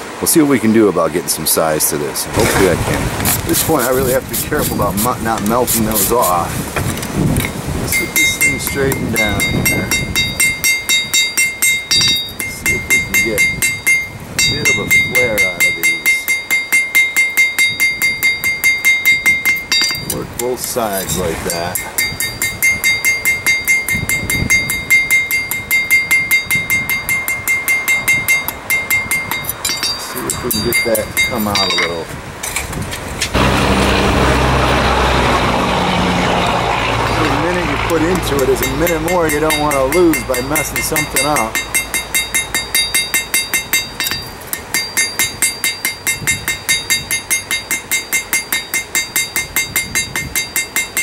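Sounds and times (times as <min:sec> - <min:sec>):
hammer striking steel on anvil: 0:07.9 - 0:32.0, 0:37.1 - 0:51.0.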